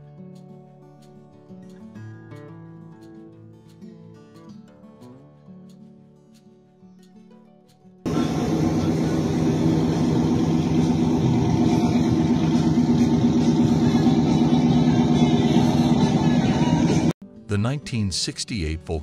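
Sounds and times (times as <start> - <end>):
engine running: 8.1 - 17.1.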